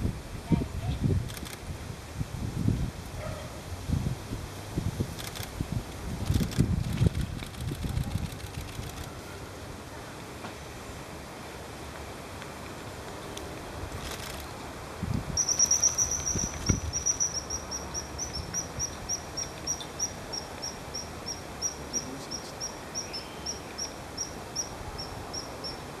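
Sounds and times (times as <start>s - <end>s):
kingfisher whistled calls: 15.4s - 25.5s.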